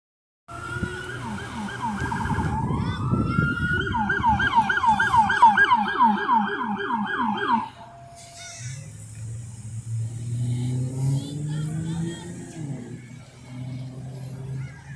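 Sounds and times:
police siren yelping: 0:00.5 - 0:08.4.

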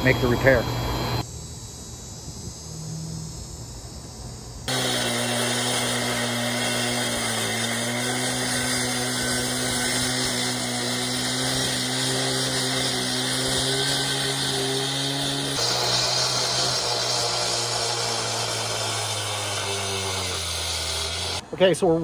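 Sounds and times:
cut-off saw engine drone: 0:04.6 - 0:21.4
blade grinding through concrete: 0:04.7 - 0:21.4.

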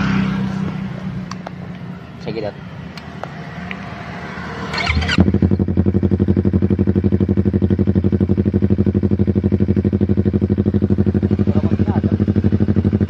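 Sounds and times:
motorcycle engine idling: 0:04.7 - 0:13.0.

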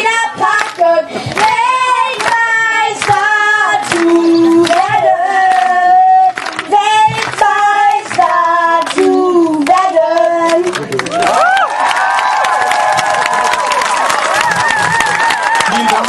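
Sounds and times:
boys singing a fan song: 0:00.0 - 0:10.8.

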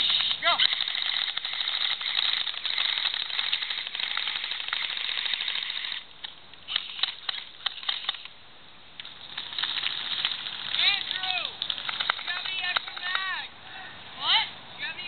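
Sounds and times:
airsoft rifles firing: 0:00.0 - 0:06.1, 0:06.7 - 0:08.3, 0:09.0 - 0:13.3.

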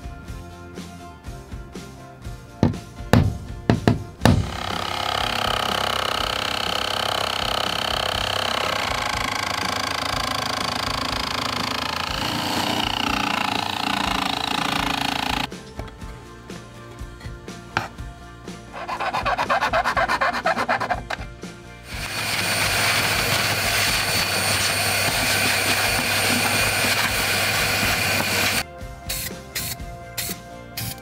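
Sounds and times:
jigsaw cutting wood: 0:04.3 - 0:15.5, 0:18.8 - 0:21.3, 0:21.9 - 0:28.6.

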